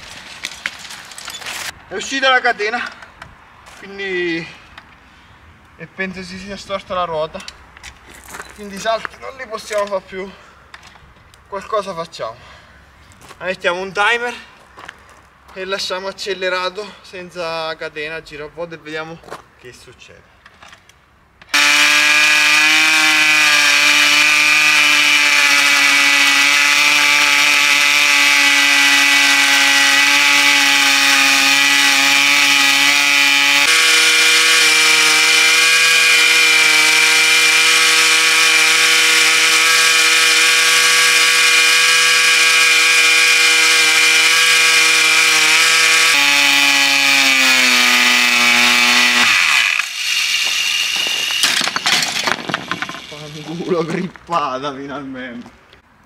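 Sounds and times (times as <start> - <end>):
two-stroke engine high revving: 21.5 - 51.6.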